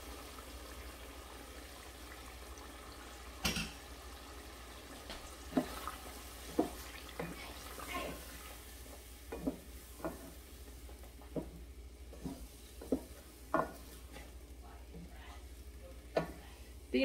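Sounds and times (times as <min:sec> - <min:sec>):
wooden spatula scraping pot: 0:05.5 - 0:10.5, 0:11.2 - 0:15.3.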